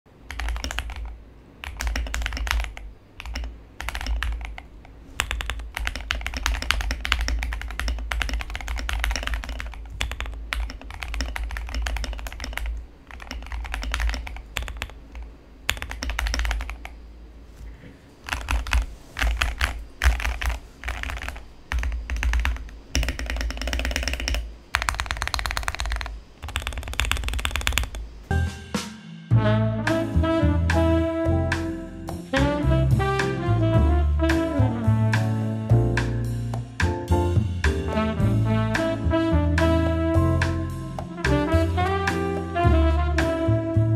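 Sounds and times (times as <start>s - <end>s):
mechanical keyboard typing: 0.3s - 17.0s, 18.2s - 28.1s.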